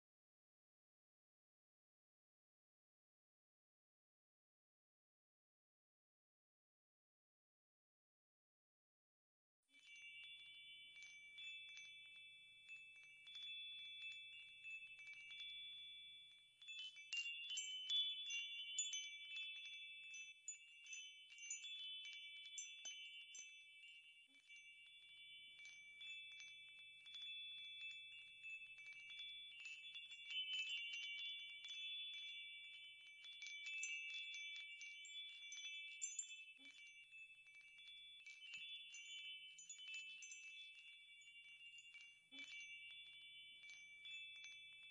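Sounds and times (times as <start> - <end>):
wind chimes ringing: 9.7 - 44.9.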